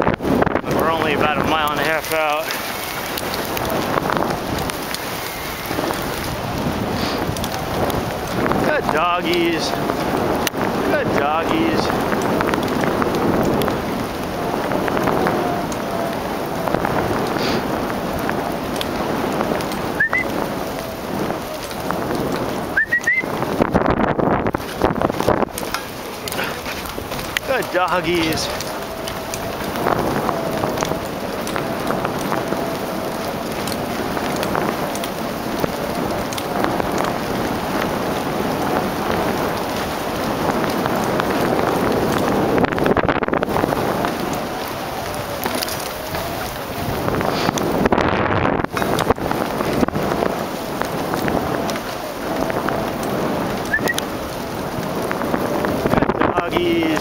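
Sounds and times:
sled runners hissing on snow: 0.2s - 57.0s
sharp little clicks: 53.6s - 54.1s.

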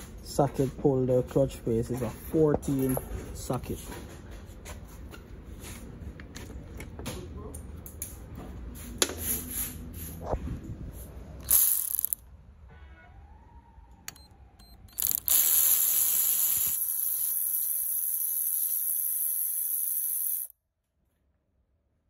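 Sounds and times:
power tool driving socket: 14.8s - 20.5s.

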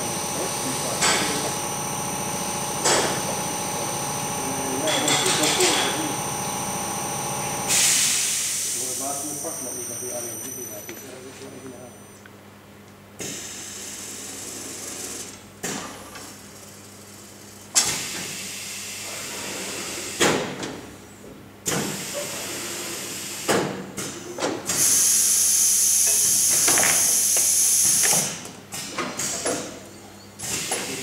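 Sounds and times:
pneumatic actuators clunking: 0.4s - 9.6s, 21.6s - 31.0s
compressed air hissing: 7.7s - 9.2s.

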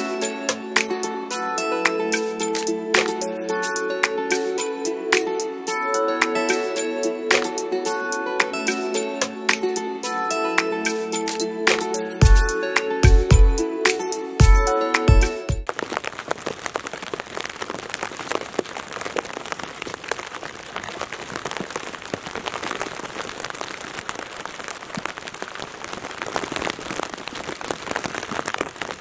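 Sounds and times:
rain pattering on tarp: 15.6s - 29.0s.

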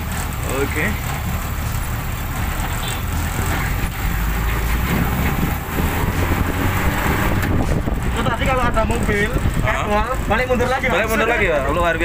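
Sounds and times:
engine rumble inside moving vehicle: 0.0s - 12.0s
road and wind noise: 0.0s - 12.0s.

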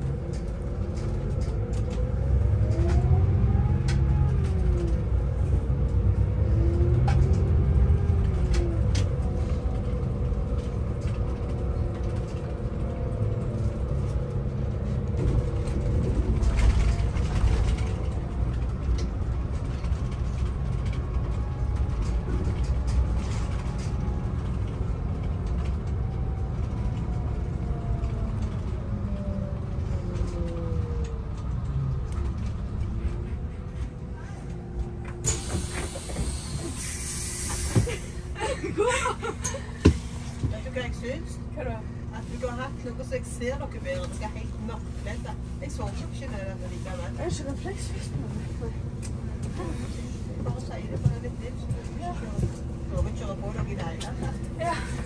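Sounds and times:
bus drivetrain and tyres rumbling: 0.0s - 55.0s.

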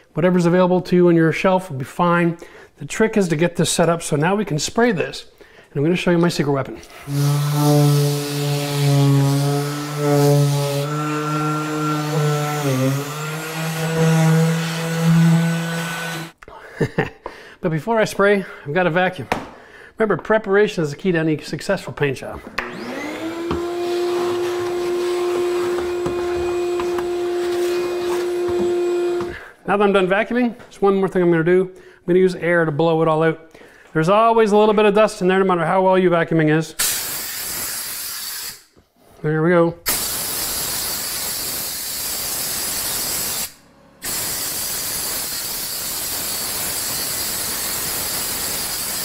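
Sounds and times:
shop vacuum humming: 6.9s - 16.4s, 22.5s - 29.5s.

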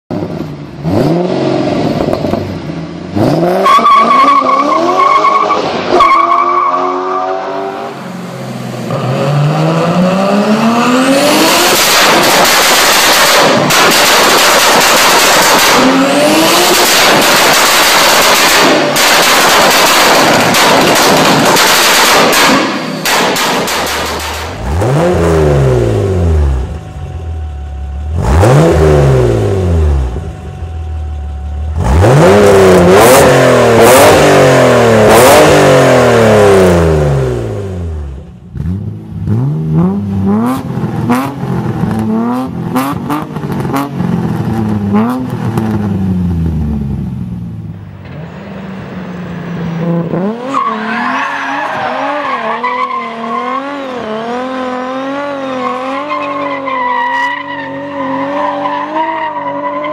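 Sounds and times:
car engine revving: 0.1s - 59.9s
exhaust pops and crackles: 11.7s - 16.0s, 16.6s - 24.6s.

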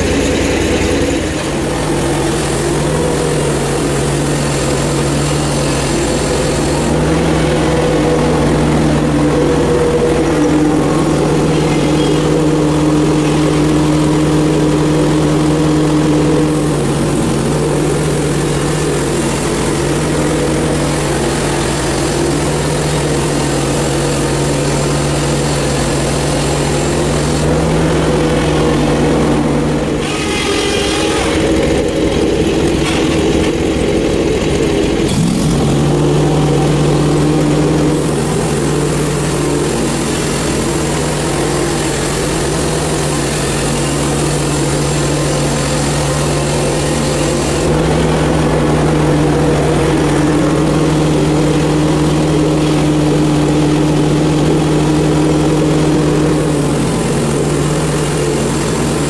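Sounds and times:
gasoline engine running: 0.0s - 59.0s
band saw blade hissing through log: 1.6s - 8.4s, 30.0s - 31.6s, 37.3s - 47.9s.

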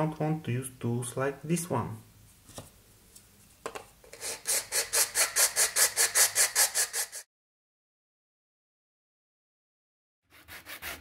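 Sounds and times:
metal file rasping on plastic: 4.1s - 7.2s
short scrape: 4.1s - 7.3s.

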